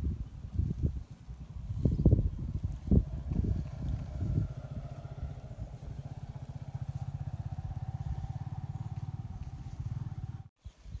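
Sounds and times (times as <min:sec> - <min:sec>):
small engine puttering: 0:02.5 - 0:10.5.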